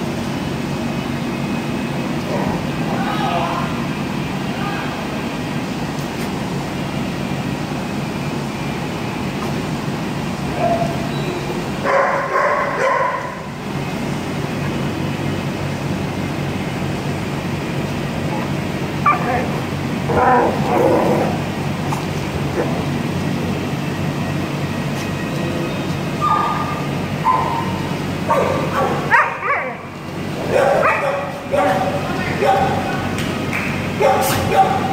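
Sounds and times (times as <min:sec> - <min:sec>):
steady low hum: 0:00.0 - 0:34.9
dog yipping and barking: 0:10.6 - 0:11.0, 0:11.8 - 0:13.4, 0:18.4 - 0:19.6, 0:26.2 - 0:29.8, 0:30.5 - 0:32.7.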